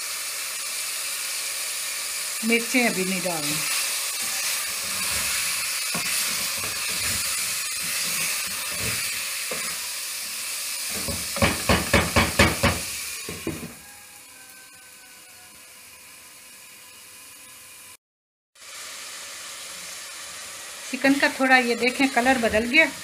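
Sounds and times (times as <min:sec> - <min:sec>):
meat sizzling in a pot: 0:00.0 - 0:18.0, 0:18.6 - 0:23.0
wooden spoon knocking pot: 0:11.0 - 0:13.8.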